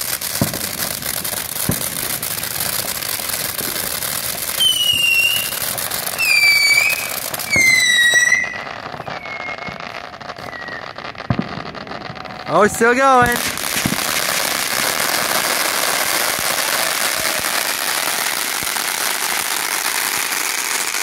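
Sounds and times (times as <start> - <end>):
firework fountain crackling hiss: 0.0 - 21.0
firework shrill whistles: 4.4 - 21.0.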